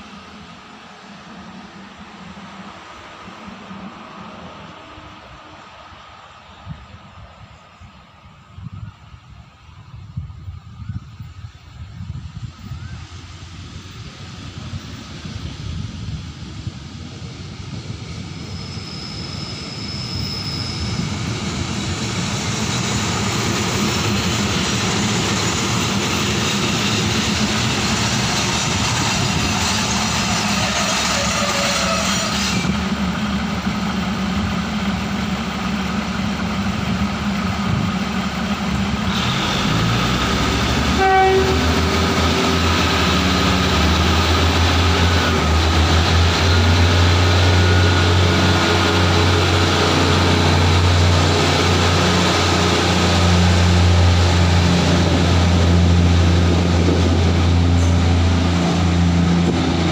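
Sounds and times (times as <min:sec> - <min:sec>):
diesel train engine: 0:00.0 - 0:59.9
train horn note: 0:30.6 - 0:32.6, 0:40.9 - 0:42.1.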